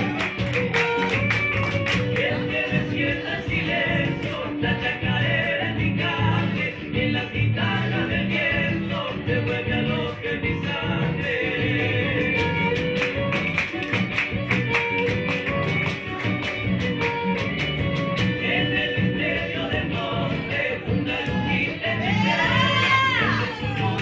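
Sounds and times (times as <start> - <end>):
folk band playing: 11.2 - 19.6.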